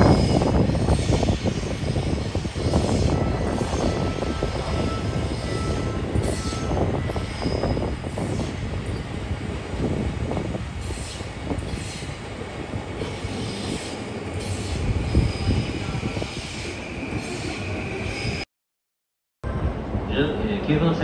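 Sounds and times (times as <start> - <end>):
electric train rumbling on rails: 0.0 - 18.4, 19.4 - 21.0
wheel squeal: 0.1 - 9.0.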